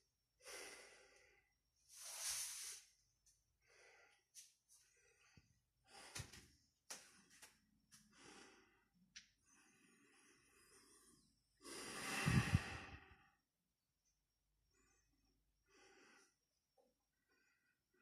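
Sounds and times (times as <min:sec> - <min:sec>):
man breathing: 0:03.6 - 0:13.4.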